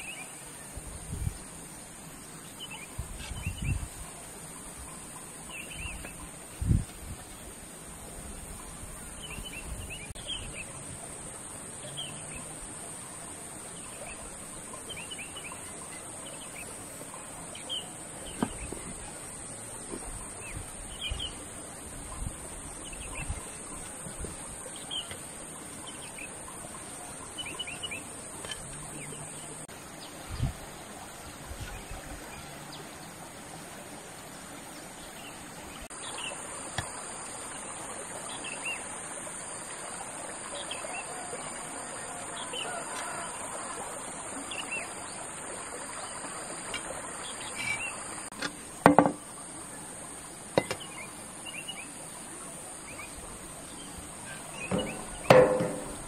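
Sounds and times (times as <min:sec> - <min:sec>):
steady high hiss: 0:00.0 - 0:56.0
small birds chirping: 0:13.2 - 0:30.7.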